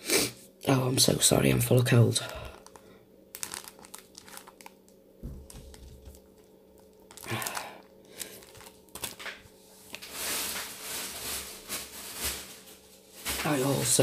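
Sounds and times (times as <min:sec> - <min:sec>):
plastic packaging crinkling: 0:01.5 - 0:14.0.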